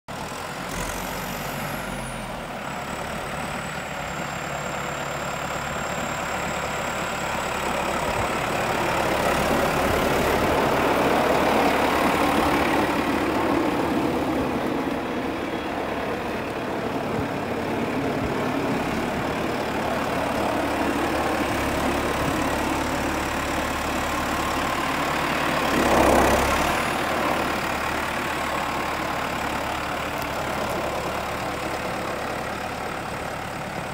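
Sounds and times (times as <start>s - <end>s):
tractor diesel engine running: 0.1s - 33.9s.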